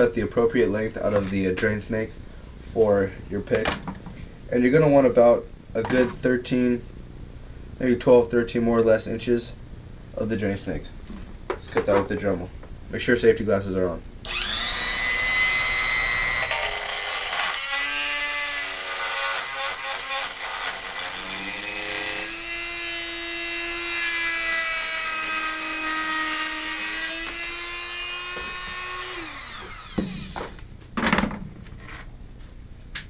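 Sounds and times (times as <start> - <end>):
rotary tool whining: 14.2 - 30.6.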